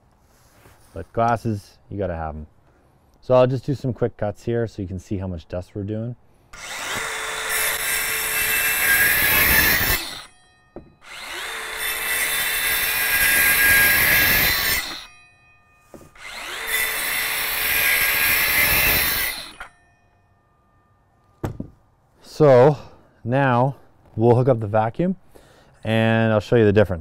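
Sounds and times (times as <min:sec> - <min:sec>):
circular saw cutting wood: 0:06.6 - 0:15.2, 0:16.0 - 0:19.8.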